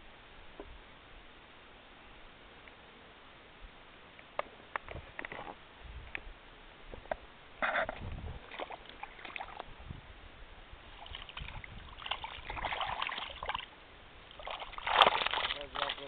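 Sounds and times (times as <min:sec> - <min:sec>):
water splashing in a keepnet: 0:08.4 - 0:09.8, 0:10.9 - 0:16.0.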